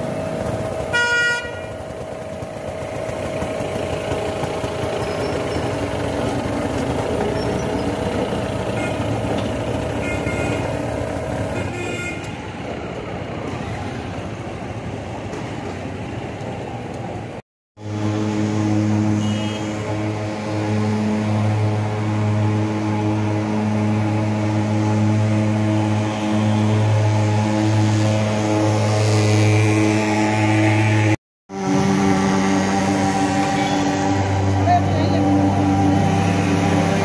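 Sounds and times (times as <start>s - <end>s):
street traffic noise: 0.0s - 37.0s
vehicle horn honking: 0.9s - 1.8s, 8.7s - 9.3s, 10.0s - 10.8s, 11.5s - 12.3s, 19.0s - 20.0s, 33.5s - 35.2s.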